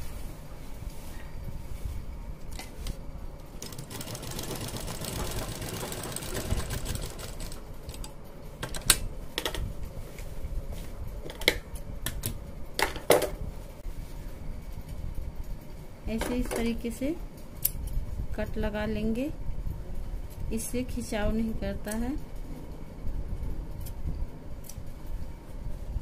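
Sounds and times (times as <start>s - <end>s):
sewing machine stitching: 3.6s - 8.1s.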